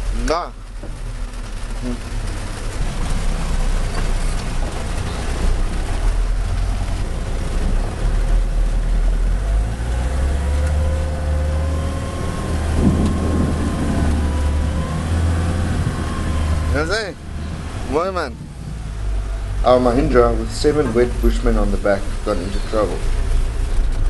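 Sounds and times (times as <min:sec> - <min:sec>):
tyre and rain noise: 0:00.0 - 0:24.0
vehicle engine running: 0:00.0 - 0:24.0.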